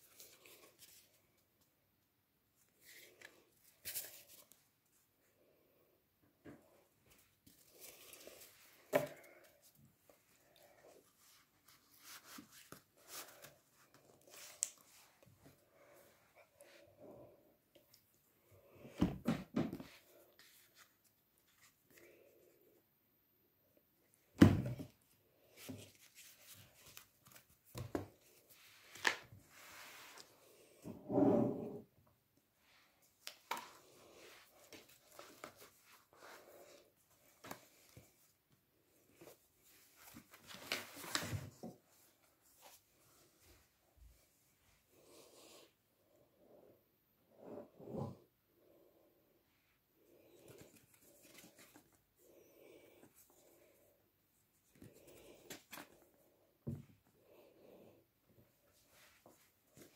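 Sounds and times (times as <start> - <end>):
cards rustling and sliding on paper: 10.8 - 15.2.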